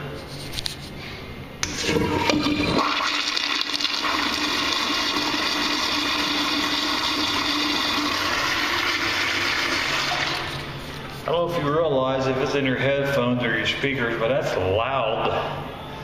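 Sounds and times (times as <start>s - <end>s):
toilet flushing: 1.6s - 10.7s.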